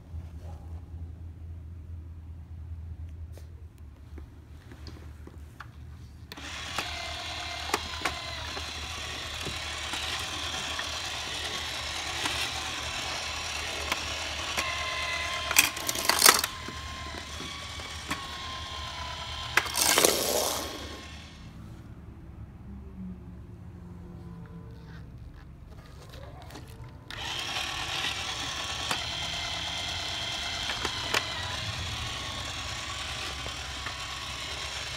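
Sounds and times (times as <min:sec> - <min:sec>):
plastic toy gears whirring: 0:06.3 - 0:21.5, 0:26.5 - 0:34.9
loud plastic clatters: 0:13.8 - 0:18.5, 0:19.4 - 0:21.0
sharp clicks: 0:27.1 - 0:34.9.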